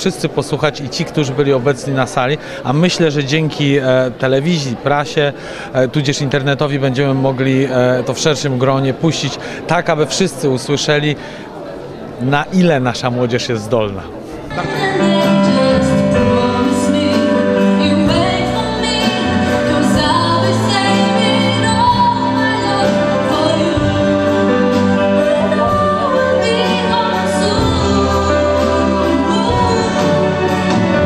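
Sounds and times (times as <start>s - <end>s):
drums: 14.5s - 31.0s
piano: 14.5s - 31.0s
woman singing into a microphone: 14.5s - 31.0s.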